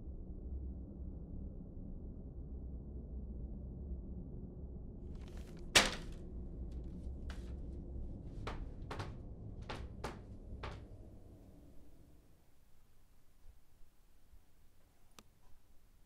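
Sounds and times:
paper bag thunk on floor: 5.2 - 6.2, 8.4 - 9.1.

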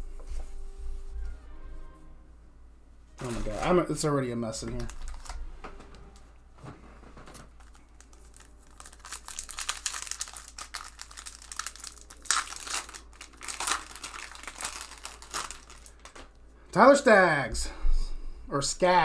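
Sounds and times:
foil wrapper crinkling: 4.5 - 5.5, 7.3 - 16.4.

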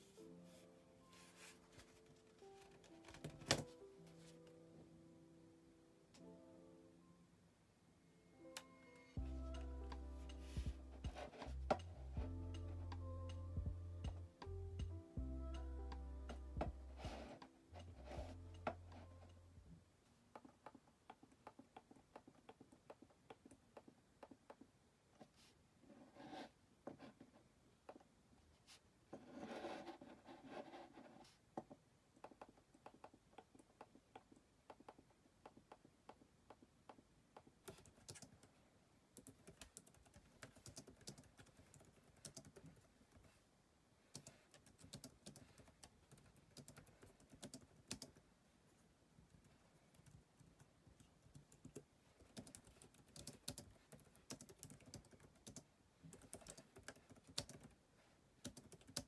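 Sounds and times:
keyboard typing clicks: 37.7 - 38.5, 39.2 - 43.3, 44.1 - 48.2, 49.4 - 57.7, 58.4 - 59.0.

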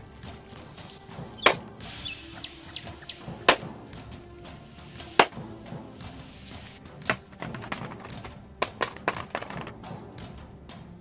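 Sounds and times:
faint bird chirps: 1.4 - 3.5.

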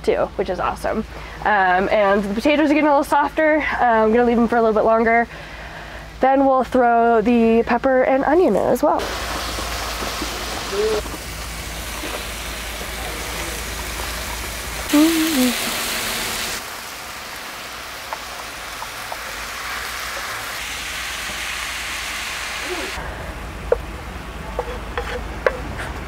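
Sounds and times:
sweet potatoes sizzling in skillet: 9.0 - 23.0.

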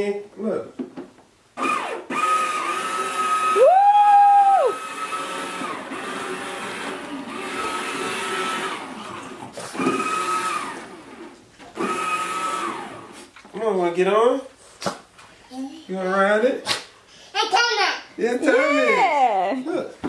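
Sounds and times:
toy train electric motor whining: 1.6 - 3.6, 4.5 - 13.2.

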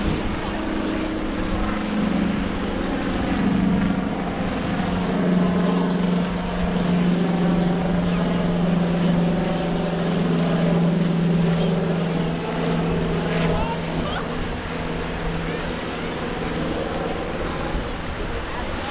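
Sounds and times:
wind noise: 0.0 - 8.3
small motor humming: 0.0 - 18.9
water noise: 0.0 - 18.9.

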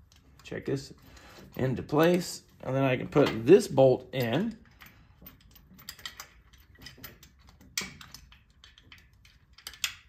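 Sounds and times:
metallic clicks of bolt fitting: 4.2 - 10.0.

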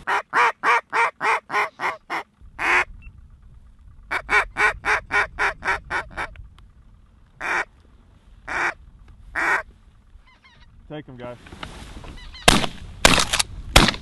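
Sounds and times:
duck call quacks: 0.0 - 2.9, 4.1 - 6.3, 7.4 - 7.7, 8.5 - 8.8, 9.4 - 9.7.

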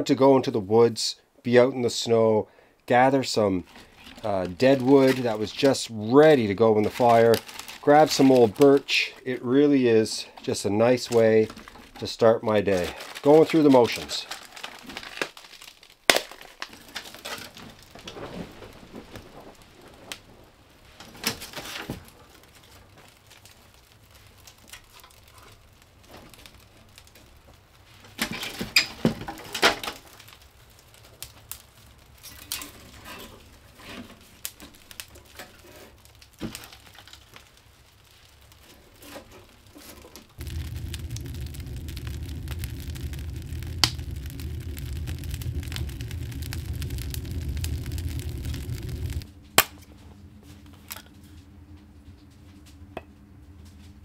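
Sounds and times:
firewood knocking and snapping: 14.6 - 18.2, 39.2 - 49.7
steady low hum: 40.4 - 54.0.

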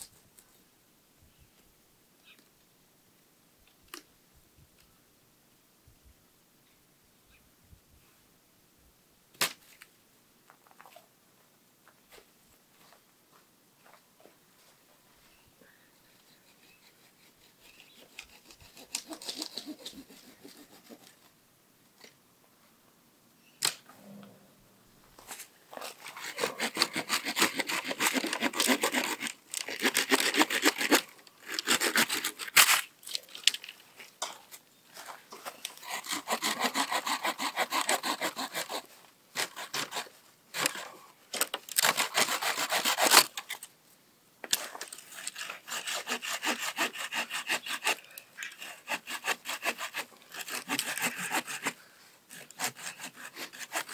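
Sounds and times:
hand saw cutting branch: 16.4 - 21.2, 25.8 - 32.9, 35.5 - 43.5, 44.5 - 53.9.

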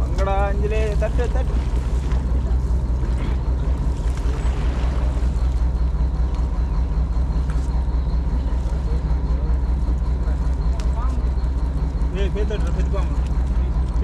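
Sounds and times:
engine rumbling: 0.0 - 14.0.

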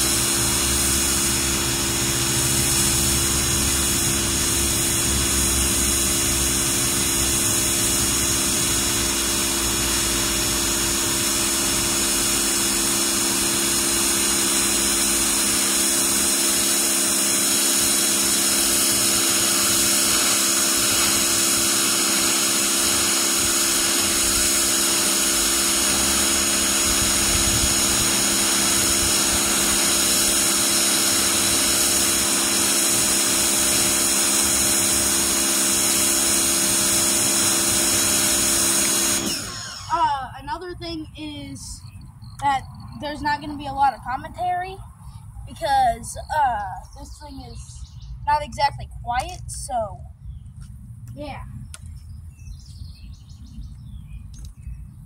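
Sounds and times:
pressure washer motor humming: 0.0 - 40.7
water jet hissing on concrete: 0.0 - 41.7.

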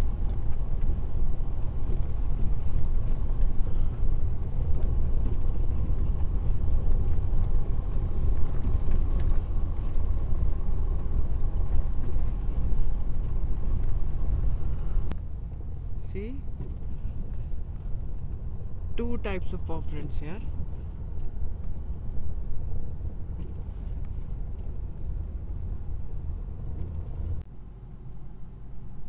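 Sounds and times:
car driving on snow: 0.0 - 29.0.

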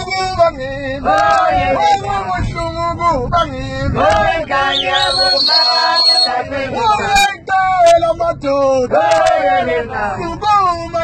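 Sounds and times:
low vehicle rumble: 0.0 - 11.0
voices singing together: 1.0 - 2.2, 3.9 - 7.4, 8.9 - 10.3.

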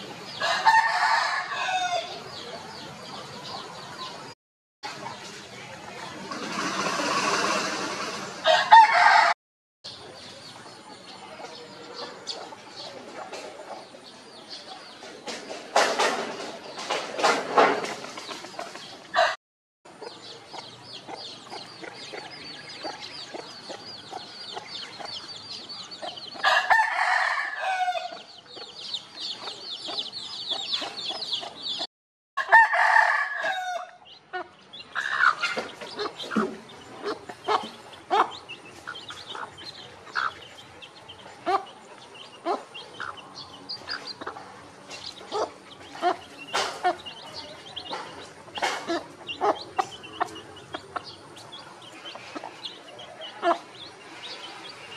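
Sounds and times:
rooster crowing: 0.4 - 2.2, 8.4 - 9.4, 26.4 - 28.2, 32.4 - 34.0
hens clucking: 4.9 - 9.1, 34.1 - 54.9.

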